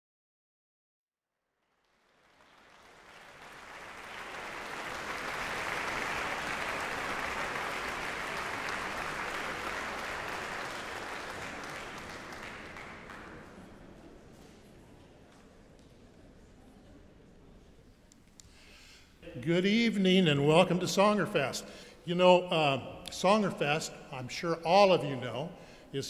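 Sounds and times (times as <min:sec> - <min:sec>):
audience applauding: 0:01.6 - 0:14.2.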